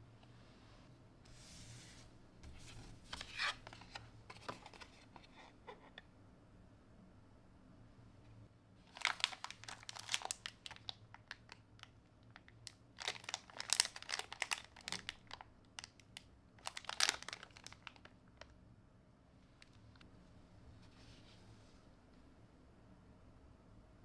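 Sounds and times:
plastic wrapping crinkling: 0:08.9 - 0:18.5.

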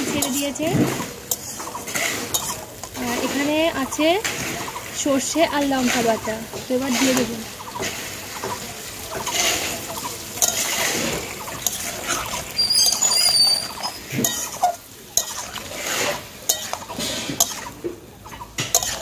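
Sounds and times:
light sizzle: 0:00.0 - 0:19.0
metal spatula scraping a pan: 0:00.0 - 0:19.0
high chirps: 0:10.7 - 0:14.7.

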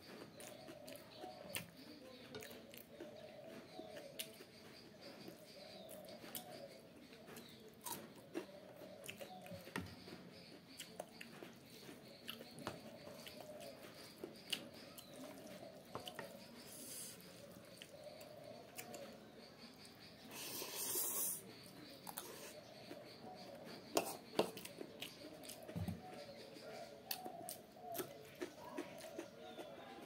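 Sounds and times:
chewing and mouth clicks: 0:02.4 - 0:04.5, 0:10.4 - 0:16.4, 0:24.0 - 0:26.2, 0:27.0 - 0:30.0.

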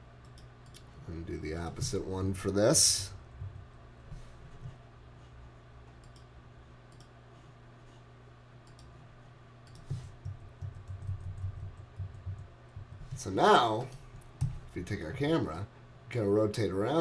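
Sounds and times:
faint low hum: 0:00.0 - 0:17.0
computer mouse clicks: 0:00.2 - 0:00.9, 0:06.0 - 0:06.3, 0:06.9 - 0:07.2, 0:08.6 - 0:09.0, 0:09.6 - 0:13.1.

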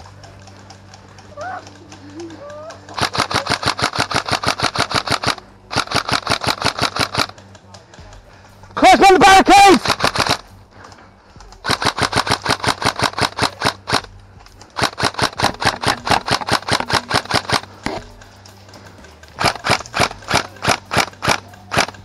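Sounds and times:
airsoft rifle firing full auto: 0:02.9 - 0:07.4, 0:09.7 - 0:10.5, 0:11.6 - 0:14.1, 0:14.8 - 0:17.7, 0:19.4 - 0:22.0.

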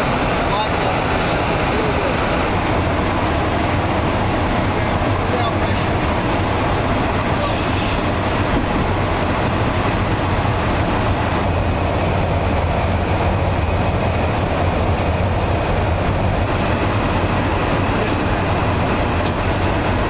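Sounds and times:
jet engine noise: 0:00.0 - 0:20.0
airflow: 0:06.0 - 0:09.0.

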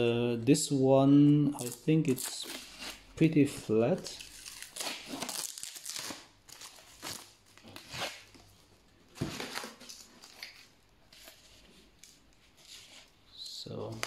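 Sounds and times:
packing material rustling: 0:03.9 - 0:13.2.

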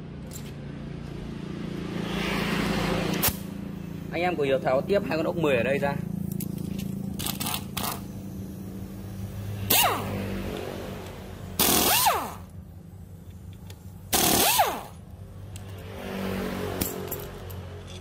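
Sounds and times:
pneumatic impact wrench: 0:03.1 - 0:03.6, 0:06.3 - 0:15.1.

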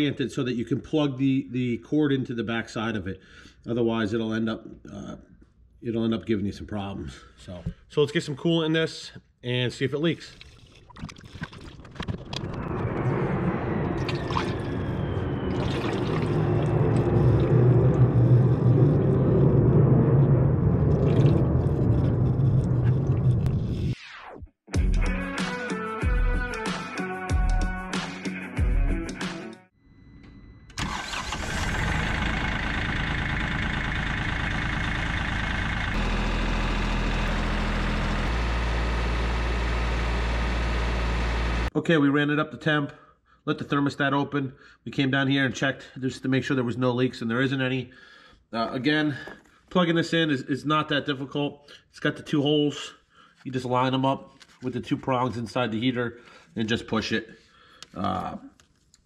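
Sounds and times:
liquid trickling through funnel: 0:10.3 - 0:12.4, 0:15.5 - 0:17.5
jet flying overhead: 0:12.6 - 0:20.6
tractor diesel engine idling: 0:30.8 - 0:41.7.

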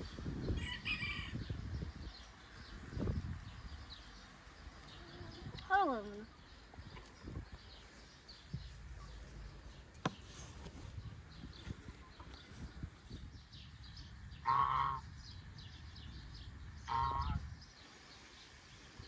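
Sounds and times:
geese honking: 0:14.4 - 0:15.1, 0:16.8 - 0:17.5.

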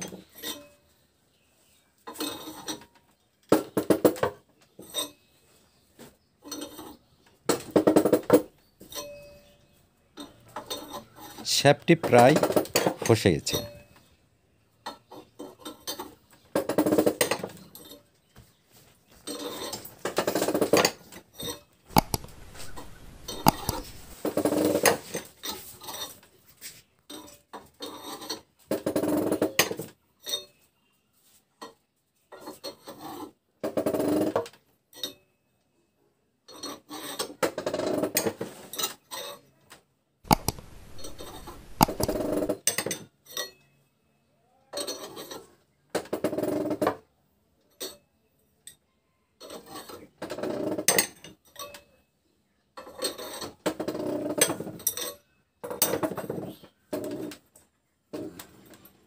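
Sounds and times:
metal scraping and creaking: 0:21.9 - 0:24.8, 0:40.3 - 0:42.6.

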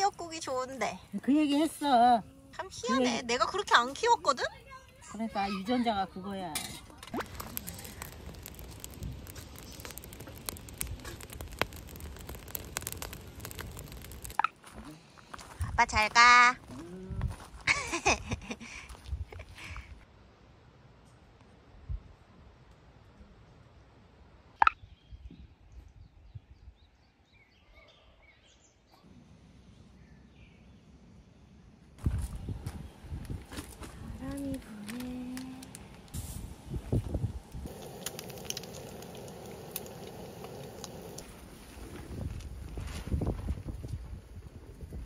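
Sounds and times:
fire crackling and popping: 0:06.5 - 0:16.3, 0:32.0 - 0:45.0.

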